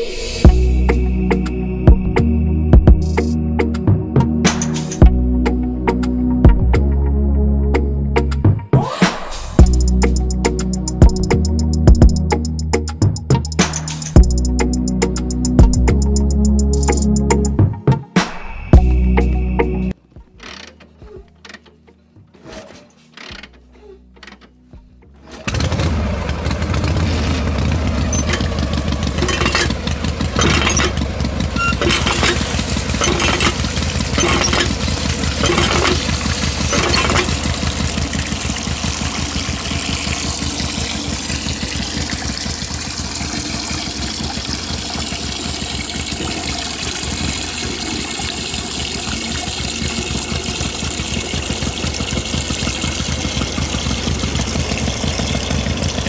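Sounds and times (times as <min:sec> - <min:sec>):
engine knocking: 0:09.6 - 0:12.6, 0:13.3 - 0:17.0, 0:25.4 - 0:56.0
small diesel engine running: 0:09.6 - 0:17.1, 0:23.1 - 0:56.0.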